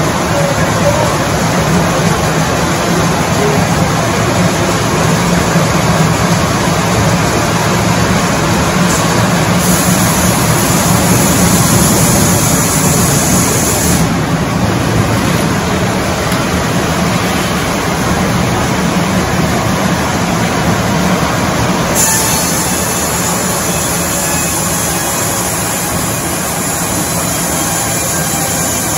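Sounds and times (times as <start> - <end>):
sawmill running: 0.0 - 28.9
saw cutting through log: 22.0 - 28.9.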